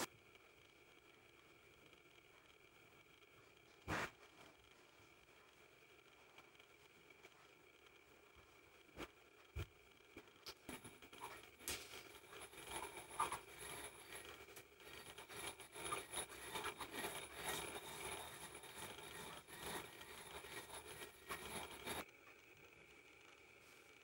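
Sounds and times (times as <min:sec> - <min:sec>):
pestle grinding in ceramic mortar: 0:12.2 - 0:22.0.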